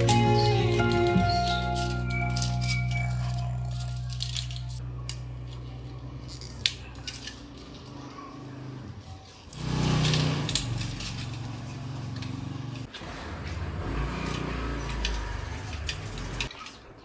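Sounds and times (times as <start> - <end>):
metal crunching scrape: 0.0 - 4.8, 9.3 - 16.5.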